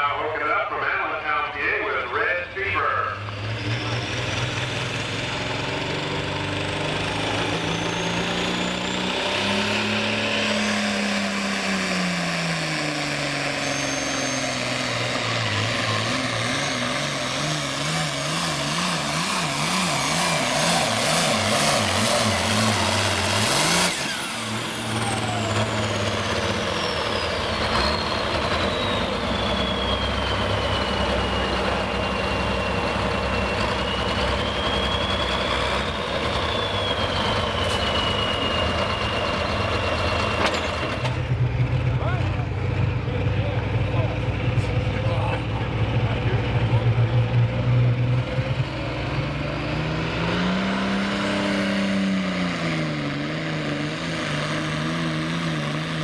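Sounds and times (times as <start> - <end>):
diesel tractor engine revving: 0.0 - 56.0
turbo whistle winding down: 13.2 - 15.1, 19.3 - 40.4.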